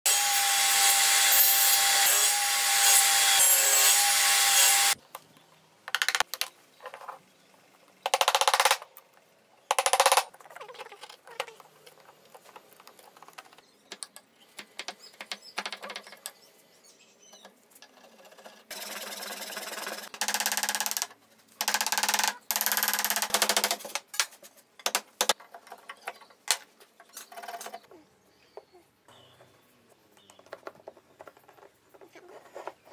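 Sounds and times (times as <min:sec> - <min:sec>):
table saw cutting wood: 0:00.1 - 0:05.0.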